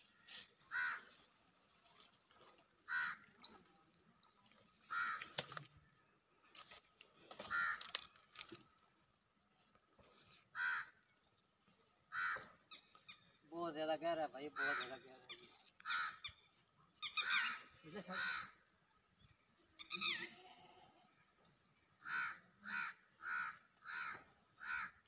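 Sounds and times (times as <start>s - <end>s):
crow cawing: 0.6s - 1.1s, 2.9s - 3.3s, 4.9s - 5.4s, 7.4s - 8.1s, 10.5s - 11.0s, 12.1s - 12.6s, 14.5s - 15.1s, 15.8s - 16.4s, 17.2s - 18.6s, 22.0s - 25.0s.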